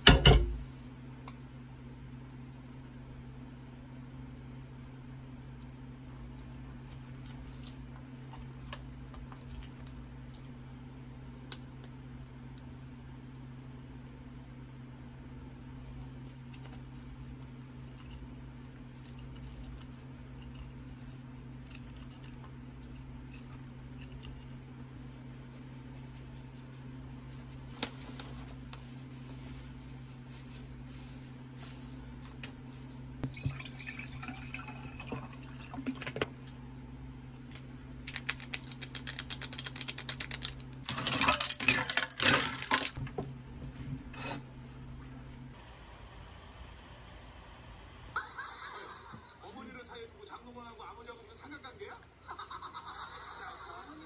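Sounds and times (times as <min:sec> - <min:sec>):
steady low hum: 0:00.0 - 0:40.9
water pouring into a glass: 0:33.2 - 0:36.0.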